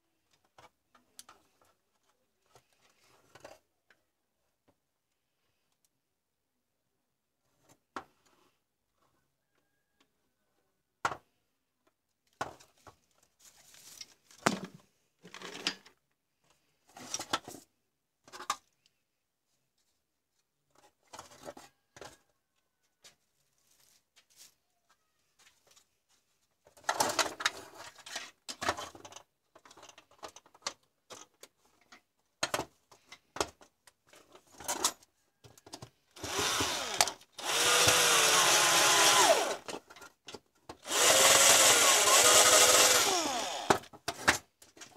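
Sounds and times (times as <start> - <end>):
plastic parts clicking and rustling: 12.2 - 17.6, 18.2 - 19.0, 26.6 - 44.9
power drill boring into plastic: 36.2 - 39.8, 40.8 - 43.9.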